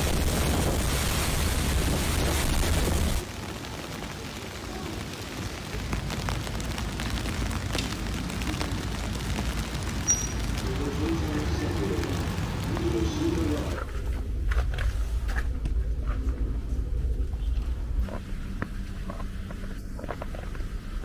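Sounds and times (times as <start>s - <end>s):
wind buffeting microphone: 0.0s - 3.2s
steady outdoor hiss: 0.0s - 21.0s.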